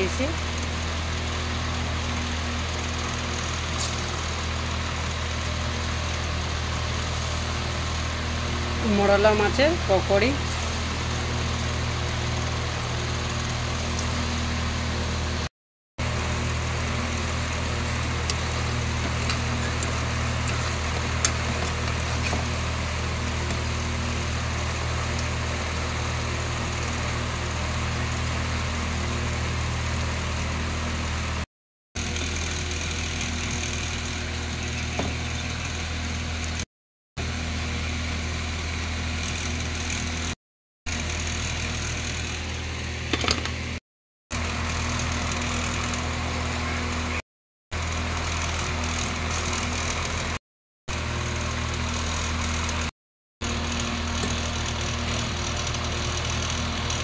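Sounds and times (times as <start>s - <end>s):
low machine hum: 0.0s - 36.6s
oil sizzling while deep-frying: 0.0s - 57.0s.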